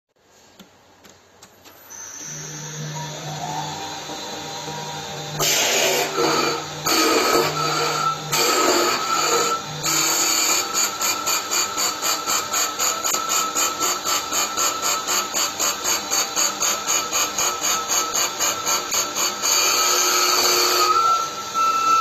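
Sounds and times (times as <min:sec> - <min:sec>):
lathe tool rasping on wood: 0:03.8 - 0:14.6.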